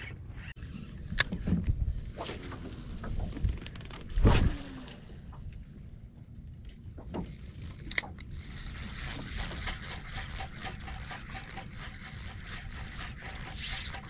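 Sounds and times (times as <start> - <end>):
fishing reel ticking: 7.6 - 14.0.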